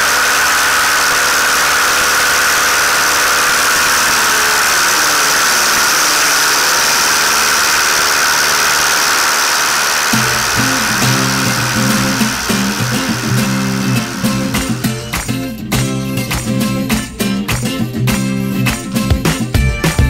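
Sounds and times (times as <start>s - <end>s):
light aircraft engine and propeller: 0.0s - 15.3s
music: 10.2s - 20.0s.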